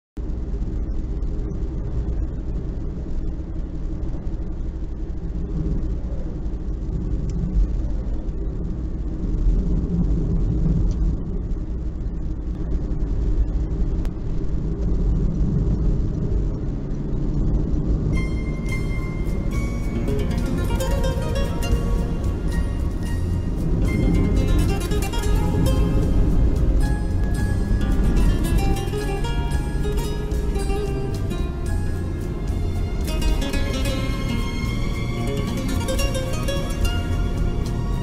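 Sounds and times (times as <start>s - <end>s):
car driving at highway speed: 0.2s - 38.0s
music: 18.2s - 38.0s.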